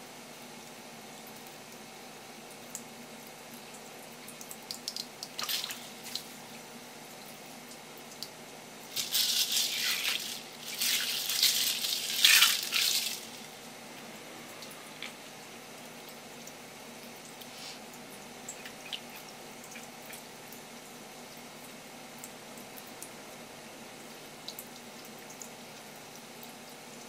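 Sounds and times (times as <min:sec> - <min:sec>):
water splashing in sink: 0:04.4 - 0:06.4, 0:08.9 - 0:13.6.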